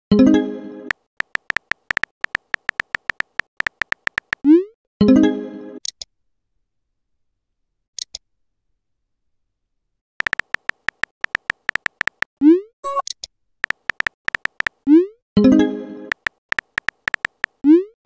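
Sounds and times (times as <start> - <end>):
keyboard key clicks: 1.2 - 4.4, 10.2 - 12.3, 13.6 - 14.8, 16.1 - 17.6.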